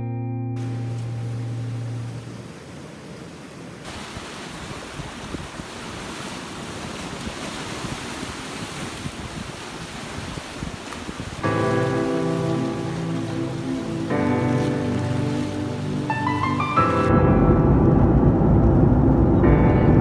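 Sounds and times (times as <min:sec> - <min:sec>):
guitar music: 0:00.0 - 0:02.3, 0:11.4 - 0:18.6
surf breaking on rocks: 0:00.6 - 0:17.0.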